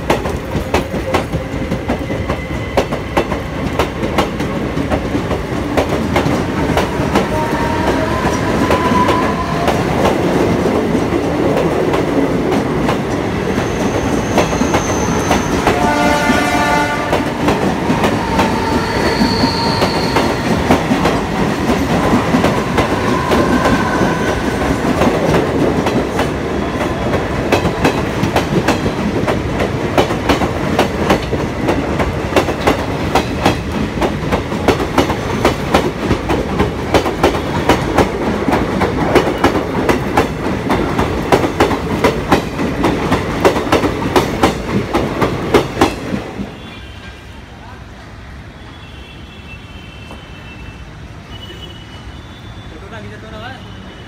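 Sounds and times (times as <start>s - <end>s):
train horn blast: 7.2s - 9.8s, 15.6s - 17.5s
wheel squeals: 13.5s - 15.6s, 18.2s - 20.5s.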